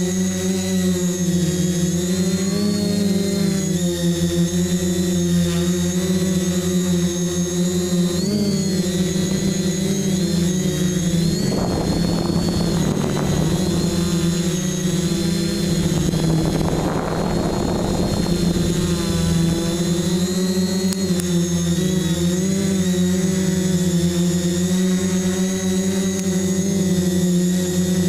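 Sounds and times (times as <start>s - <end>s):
drone motors whining: 0.0s - 28.0s.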